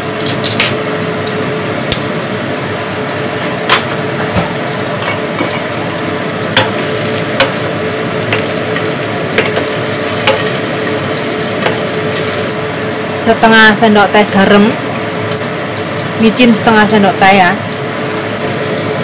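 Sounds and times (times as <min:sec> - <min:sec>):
shrimp sizzling in a wok: 0:01.6 - 0:13.7.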